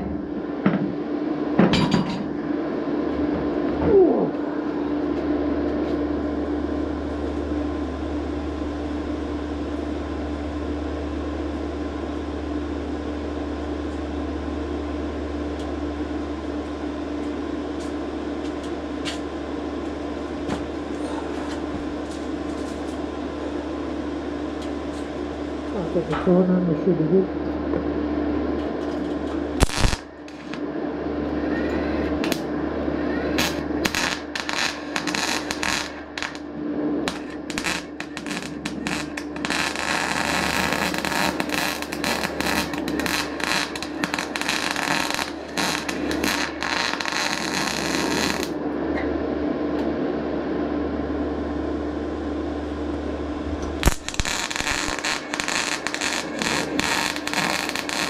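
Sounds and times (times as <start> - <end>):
steady hum: 0.0 - 58.0
welding arc crackling: 28.7 - 30.6, 32.2 - 32.5, 33.4 - 48.6, 53.6 - 58.0.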